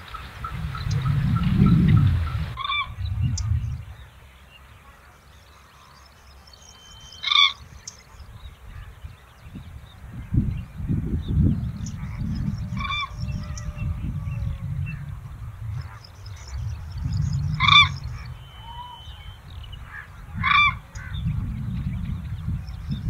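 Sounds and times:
large bird calling loudly: 0:00.0 - 0:03.7, 0:06.7 - 0:08.0, 0:11.8 - 0:21.4
low rumble: 0:00.2 - 0:04.3, 0:10.1 - 0:23.0.

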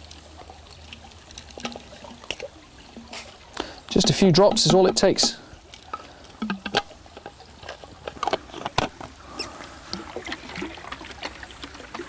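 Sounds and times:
plastic bottle clicks and taps: 0:06.4 - 0:06.9.

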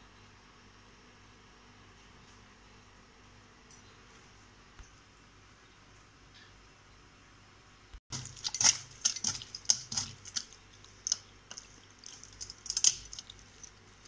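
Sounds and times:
hand squishing wet fish roe: 0:08.1 - 0:14.0.

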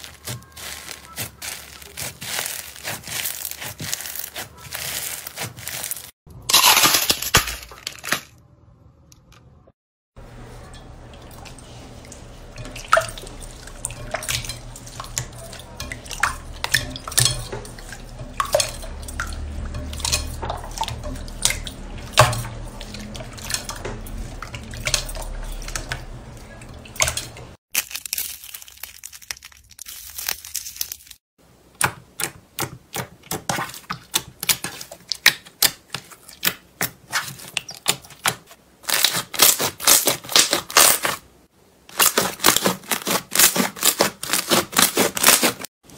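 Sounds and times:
slime squelching and popping: 0:00.0 - 0:06.6.

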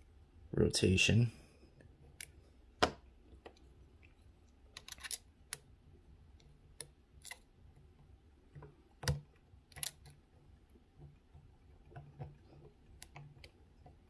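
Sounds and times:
lock pick metallic clicks: 0:04.7 - 0:05.6, 0:09.0 - 0:10.2.

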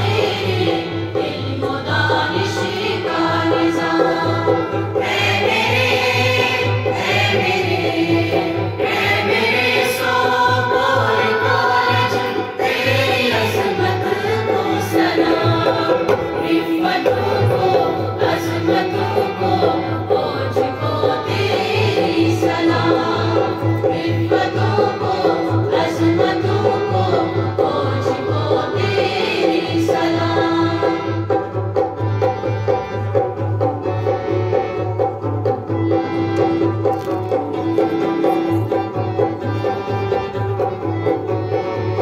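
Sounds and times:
group of voices singing: 0:00.0 - 0:32.0.

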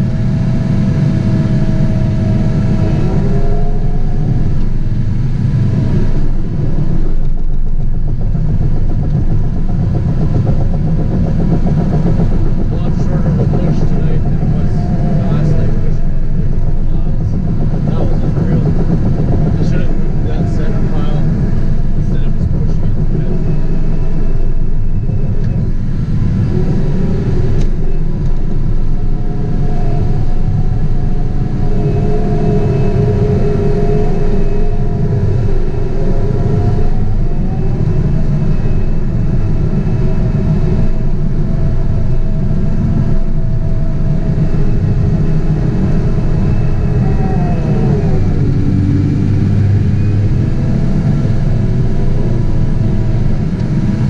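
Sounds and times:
diesel engine rumbling under load: 0:00.0 - 0:54.0
mechanical whine: 0:00.0 - 0:54.0.

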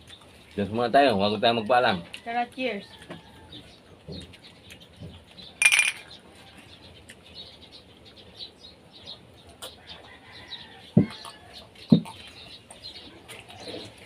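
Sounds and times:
glass mugs clinking: 0:05.6 - 0:06.1.

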